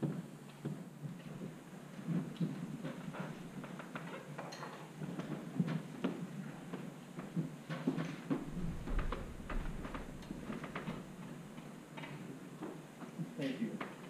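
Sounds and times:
low rumble: 8.4s - 11.6s.

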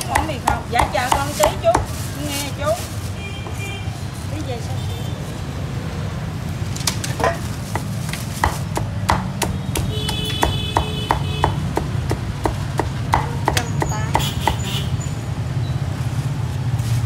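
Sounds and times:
cleaver chopping on wooden block: 0.0s - 1.9s, 7.2s - 14.7s.

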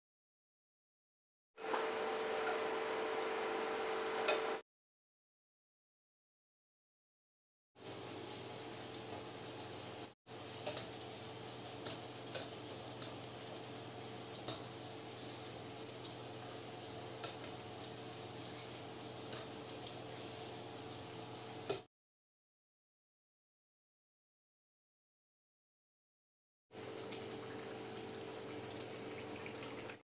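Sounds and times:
pastry sizzling in hot oil: 7.8s - 21.9s, 26.8s - 30.0s.

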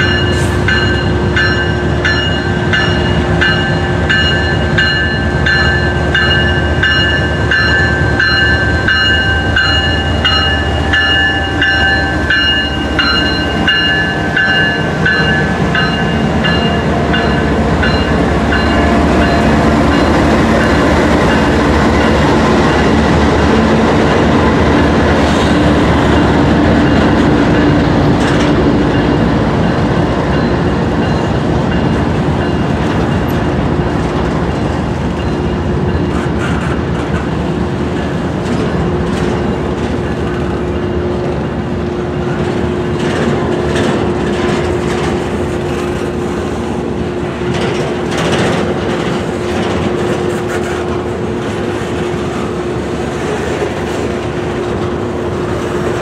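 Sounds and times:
bell ringing: 0.0s - 21.5s
train wheels clacking on rails: 0.0s - 56.0s.

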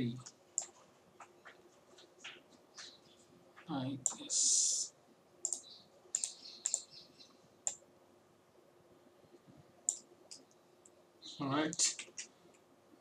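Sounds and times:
faint steady hum: 0.0s - 13.0s
computer mouse and keyboard clicks: 0.2s - 3.0s, 5.4s - 6.9s.

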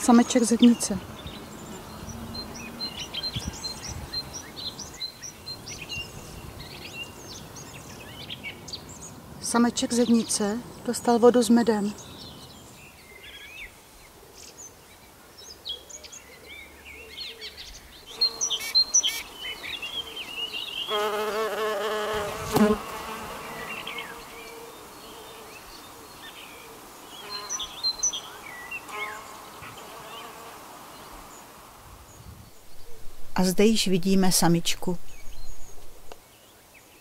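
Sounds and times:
small birds chirping: 0.0s - 37.0s
bee buzzing in flight: 18.1s - 25.8s, 26.7s - 31.8s.

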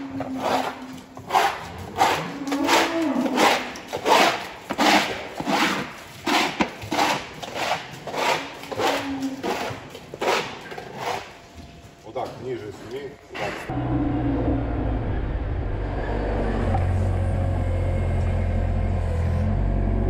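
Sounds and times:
scraper scraping wet manure: 0.2s - 11.4s.

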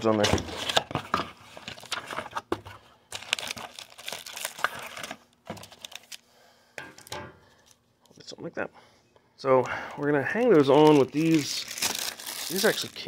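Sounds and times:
paper and plastic packaging rustling: 0.0s - 6.2s, 10.1s - 13.0s.

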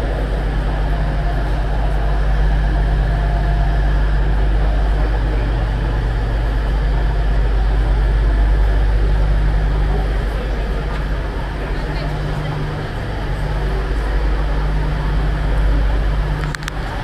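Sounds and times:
diesel train engines idling: 0.0s - 17.0s.

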